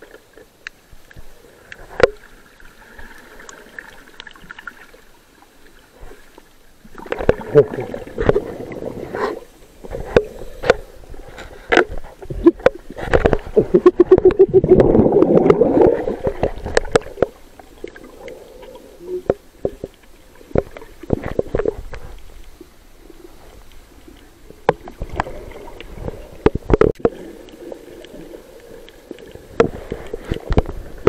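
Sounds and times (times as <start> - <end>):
underwater bubbles gurgling: 0.0 - 31.0
loud rush of bubbles: 13.6 - 17.1.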